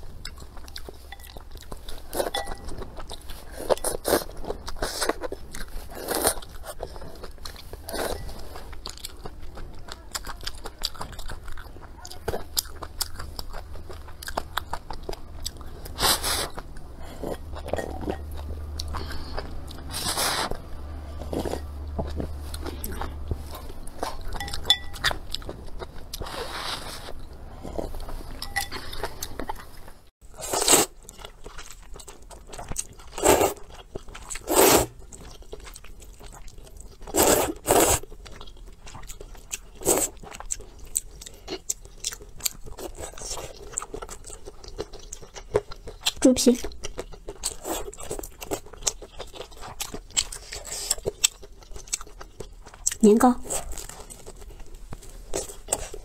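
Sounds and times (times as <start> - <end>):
wet chewing: 0.0 - 56.0
noodles slurped: 34.4 - 35.0.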